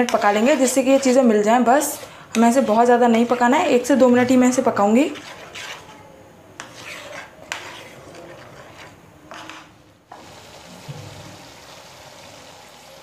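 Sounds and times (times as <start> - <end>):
spatula scraping sauce in pan: 0.0 - 6.0, 6.6 - 10.2
sauce cooking in pan: 10.1 - 13.0.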